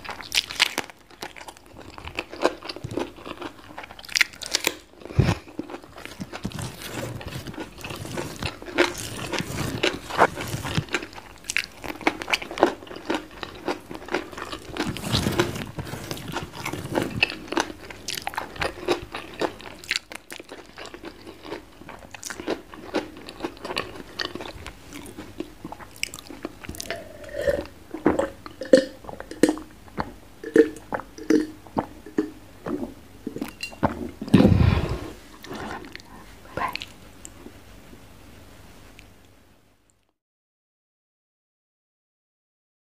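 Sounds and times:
crunchy food chewing: 0.0 - 37.4.

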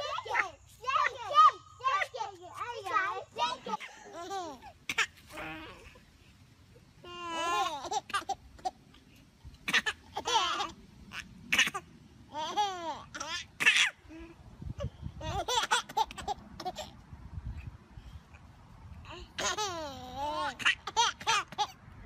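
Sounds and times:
babies laughing and babbling: 0.0 - 21.8.

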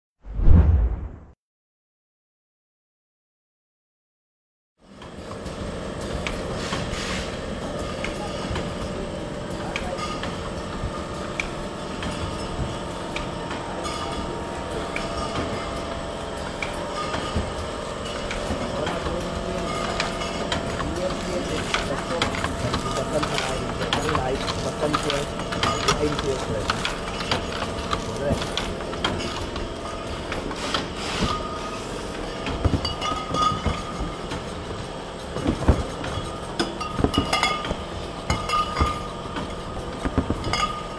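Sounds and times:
steady background hum: 4.9 - 40.9
glass bottles clinking: 32.8 - 34.0, 36.1 - 37.7, 38.3 - 39.1.

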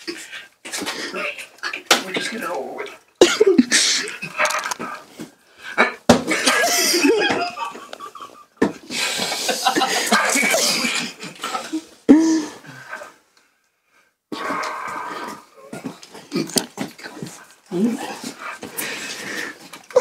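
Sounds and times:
group laughing: 3.2 - 4.6, 6.3 - 11.8.

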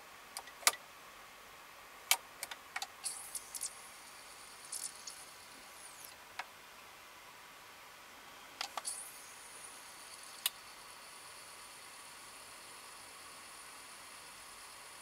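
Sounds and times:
sharp clicks from cd pickup: 8.6 - 9.1, 10.2 - 10.6.

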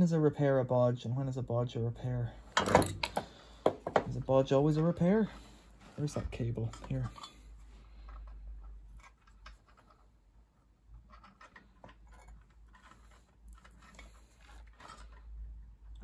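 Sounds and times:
faint clicks and rustles of wire: 2.6 - 16.0.

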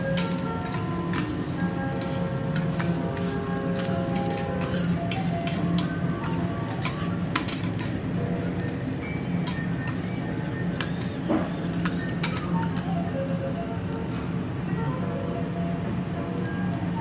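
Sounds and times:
background music: 0.0 - 10.7
spatulas clinking on griddle: 0.0 - 13.0.

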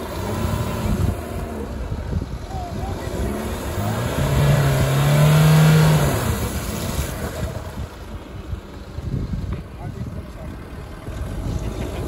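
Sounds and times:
diesel engine revving hard: 0.0 - 7.8.

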